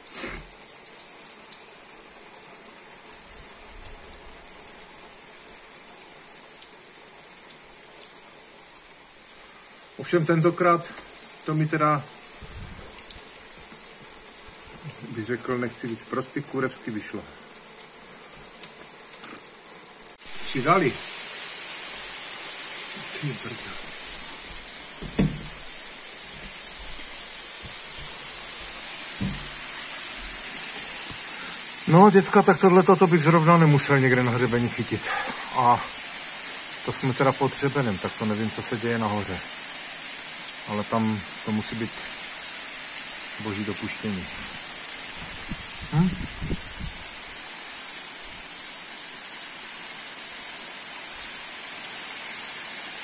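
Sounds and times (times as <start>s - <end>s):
steady rain falling: 0.0s - 53.0s
rain drop taps: 24.4s - 31.2s
low thump: 24.5s - 25.8s, 29.2s - 30.4s.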